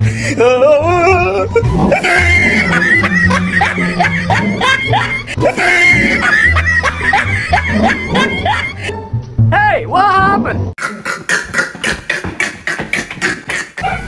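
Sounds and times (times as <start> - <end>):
high-pitched laughter: 0.4 - 8.9.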